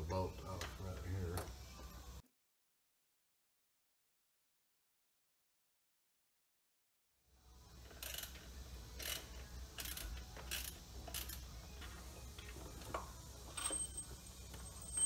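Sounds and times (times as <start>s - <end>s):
ratchet wrench clicking: 7.8s - 11.5s.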